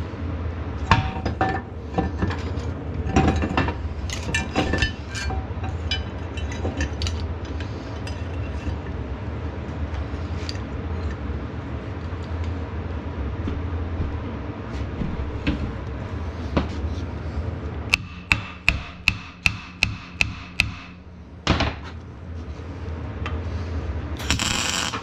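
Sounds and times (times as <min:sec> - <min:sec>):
steady low hum: 0:00.0 - 0:25.0
hammer striking metal: 0:17.9 - 0:21.0.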